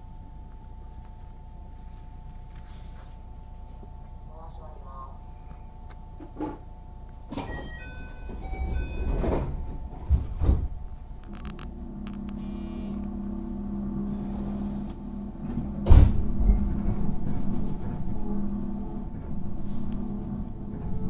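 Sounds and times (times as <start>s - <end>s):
train low hum: 0.0s - 21.0s
sliding doors thudding shut: 7.3s - 10.8s, 15.4s - 21.0s
electronic door chime: 7.3s - 11.5s
loud clunk: 8.6s - 10.8s, 15.4s - 18.2s.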